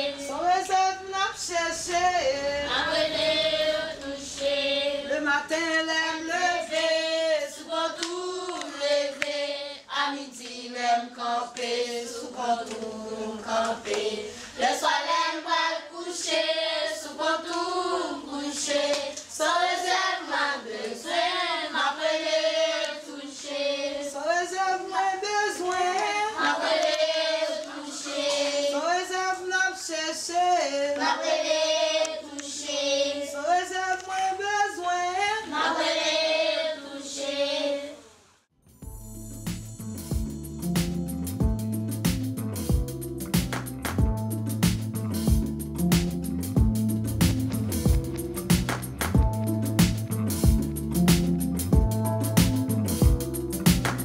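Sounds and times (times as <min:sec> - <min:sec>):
choir singing: 0:00.0 - 0:38.2.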